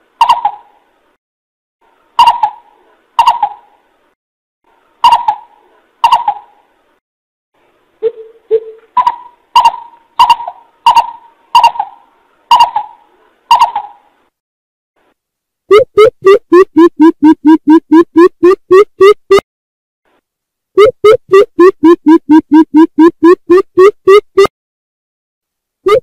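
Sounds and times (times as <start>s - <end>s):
coucal hooting calls: 9.0s - 14.0s.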